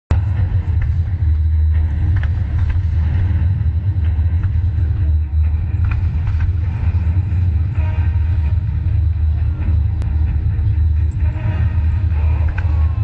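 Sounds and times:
fireworks deep rumble: 0.1 - 13.0.

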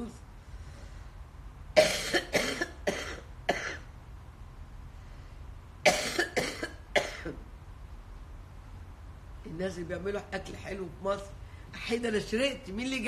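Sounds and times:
woman coughing: 1.8 - 3.9, 5.8 - 7.4.

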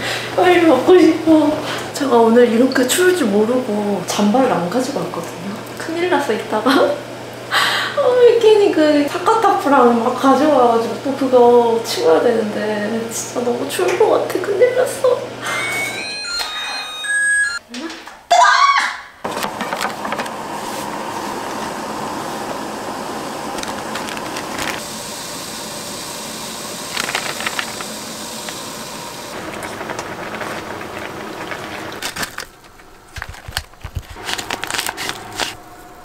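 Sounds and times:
broth boiling and bubbling: 20.0 - 36.0.

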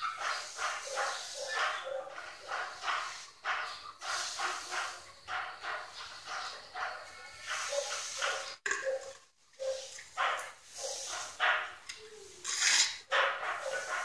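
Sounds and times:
dog barking: 0.8 - 2.8, 9.7 - 11.8, 13.1 - 14.0.

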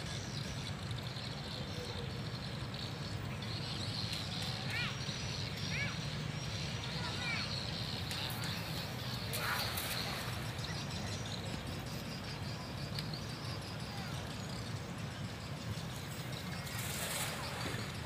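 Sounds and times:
low background noise: 0.0 - 18.0
net splashing on water: 9.3 - 10.6, 16.6 - 18.0.

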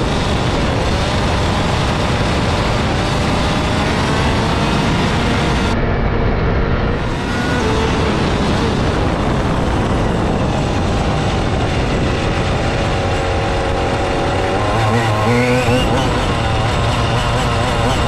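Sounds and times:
tyre noise on road: 0.0 - 18.0
wind noise: 0.0 - 18.0.

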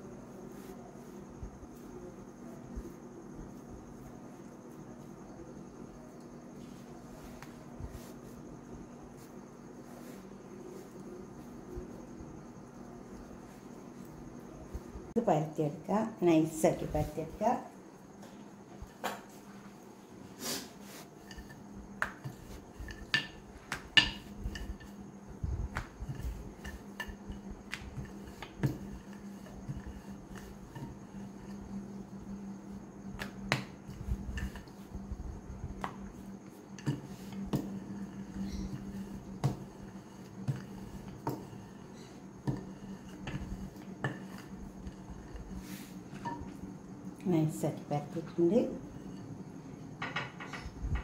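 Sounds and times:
steady low hum: 0.0 - 51.0
rolling pin clicking on dough: 21.2 - 25.0, 25.6 - 31.7, 33.1 - 34.8, 35.7 - 46.5.

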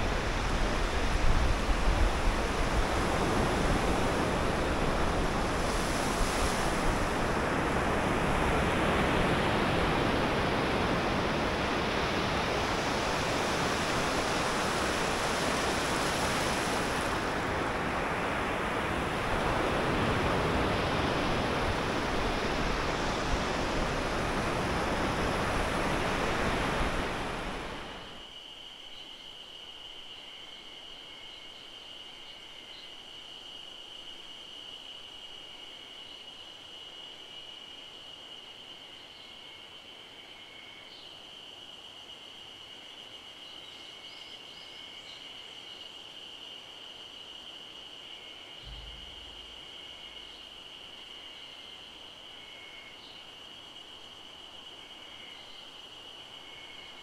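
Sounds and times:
wind buffeting microphone: 0.0 - 28.0, 48.6 - 50.6
faint steady high tone: 48.6 - 50.6.

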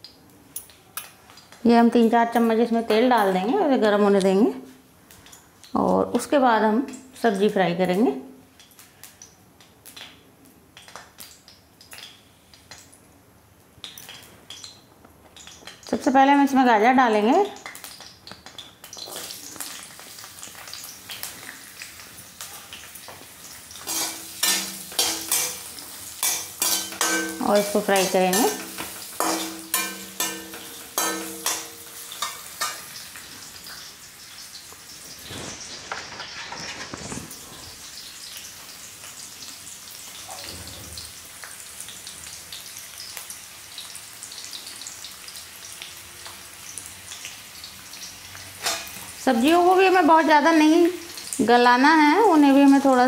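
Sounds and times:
carrots sizzling in oil: 13.8 - 53.0
dishes and utensils clicking: 23.8 - 32.8
metal spatula scraping a pan: 23.8 - 32.9, 35.2 - 37.5, 48.6 - 49.0.

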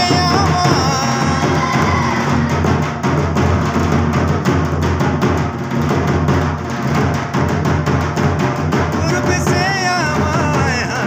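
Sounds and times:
folk dance music: 0.0 - 3.2
fast drum beat: 0.0 - 11.0.

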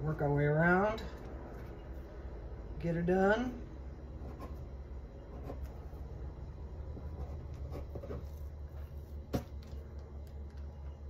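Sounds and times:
low steady hum: 0.0 - 11.0
knife scratching through dough: 4.2 - 6.1, 6.9 - 9.1.

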